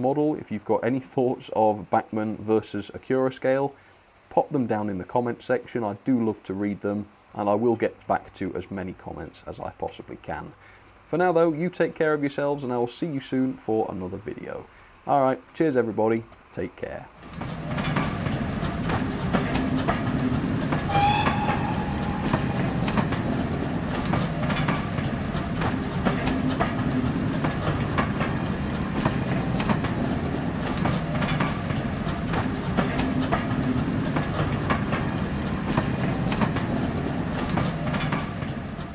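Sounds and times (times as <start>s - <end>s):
train rumble: 17.2s - 38.9s
train wheels clicking over rail joints: 17.2s - 38.9s
train horn toot: 20.9s - 23.4s.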